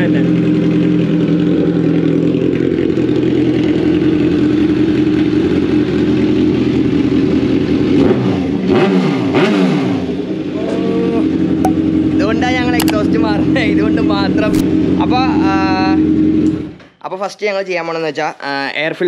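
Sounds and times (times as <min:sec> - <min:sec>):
motorcycle engine idling: 0:00.0 - 0:08.6, 0:10.2 - 0:16.7.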